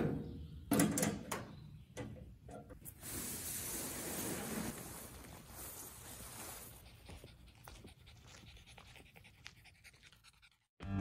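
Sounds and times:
plastic tarp crackling and rustling: 3.2 - 6.7
tarp dragged across grass: 3.5 - 6.7.

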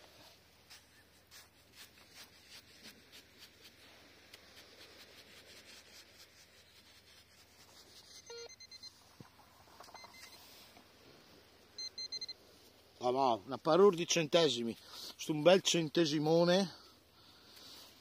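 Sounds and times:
hand tool digging in sand: 0.0 - 8.3
short electronic beeps: 8.3 - 9.0, 9.8 - 10.5, 11.8 - 12.4.

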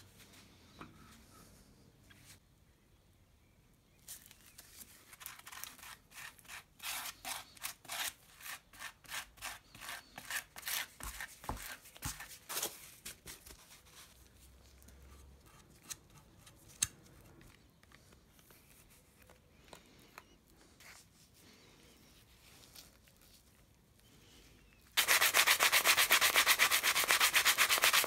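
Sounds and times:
spatula scraping paste on cardboard: 5.2 - 12.8.

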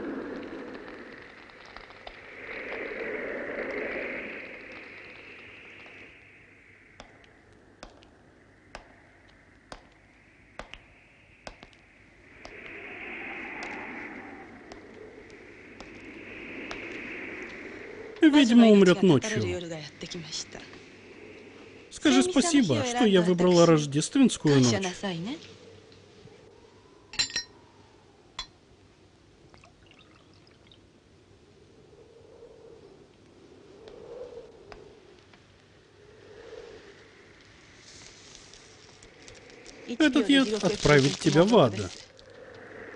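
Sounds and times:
steady rushing noise: 0.0 - 25.0
glasses clinking: 27.2 - 27.5
liquid pouring into glass: 29.6 - 30.8.

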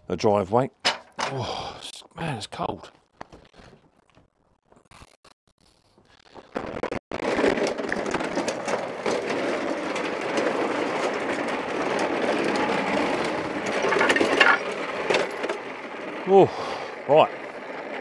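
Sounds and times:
lawnmower wheels rolling: 6.4 - 18.0
clicks and rattles: 7.1 - 16.3.

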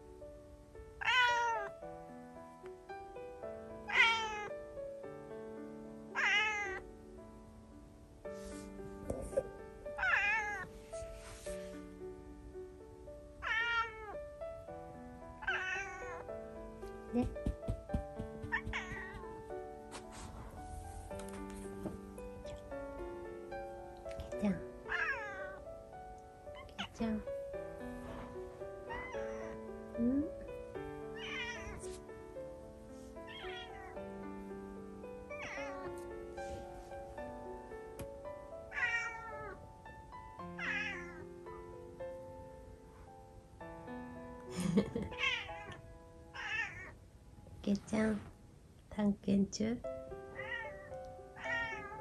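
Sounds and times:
soft background music: 0.0 - 52.0
cat meowing: 1.0 - 1.7, 3.9 - 4.5, 6.2 - 6.8, 10.0 - 10.7, 13.4 - 14.2, 15.4 - 16.3, 18.4 - 19.4, 24.9 - 25.6, 28.9 - 29.6, 31.2 - 31.9, 33.3 - 34.0, 35.3 - 36.0, 38.7 - 39.6, 40.6 - 41.2, 45.1 - 45.8, 46.4 - 47.0, 50.3 - 52.0.

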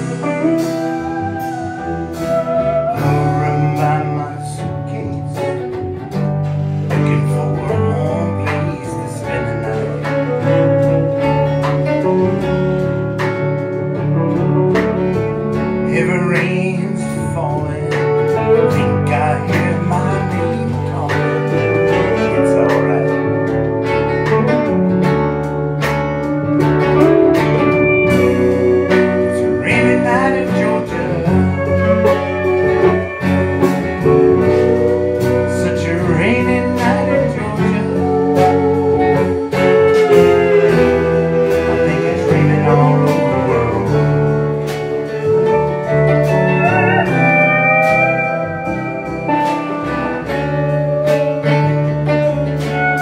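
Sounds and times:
live band playing slow ballad: 0.0 - 53.0
pedal steel guitar: 0.0 - 53.0.

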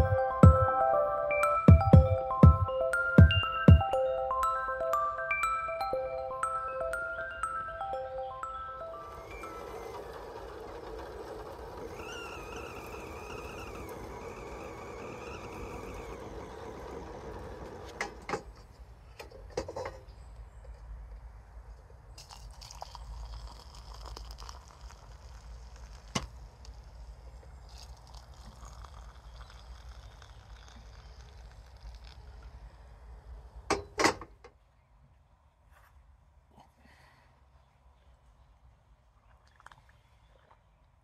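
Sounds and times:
kettle whistling faintly: 9.0 - 18.2
water pouring into a mug: 22.2 - 26.2, 27.7 - 32.2.

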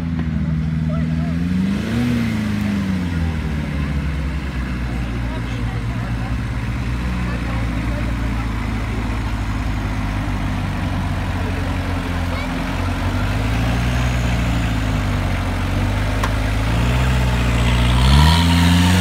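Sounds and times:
buggy engine revving: 0.0 - 19.0.

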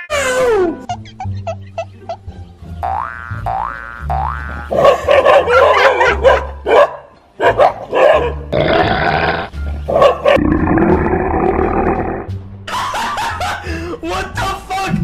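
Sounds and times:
dogs barking and growling: 4.7 - 12.3.

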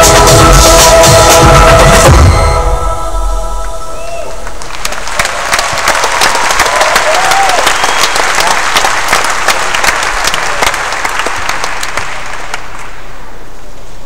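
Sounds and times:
audience applauding: 4.3 - 13.2
whistles: 7.6 - 8.3.

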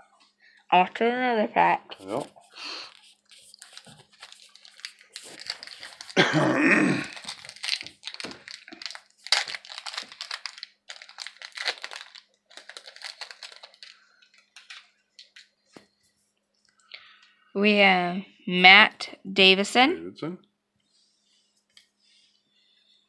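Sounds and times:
foil wrapper crinkling and tearing: 2.0 - 6.3, 6.9 - 15.5.

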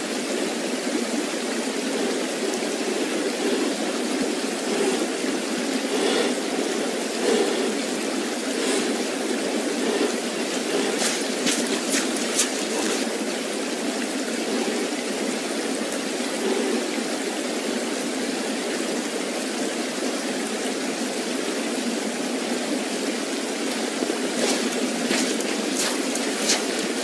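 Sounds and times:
creek water rushing: 0.0 - 27.0.

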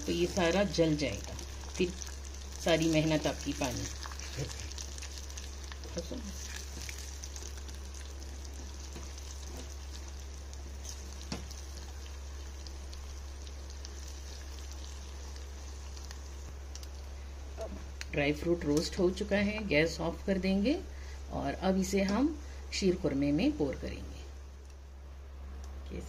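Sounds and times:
nuts sizzling in ghee: 0.0 - 19.8
steady low hum: 0.0 - 26.0.

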